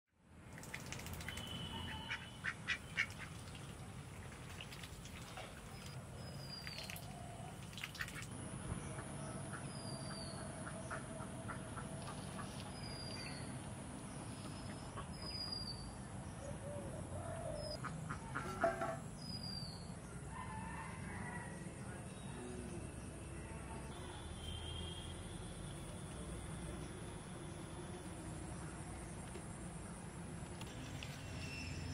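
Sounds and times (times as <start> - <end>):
ducks and chickens clucking: 17.7 - 19.1.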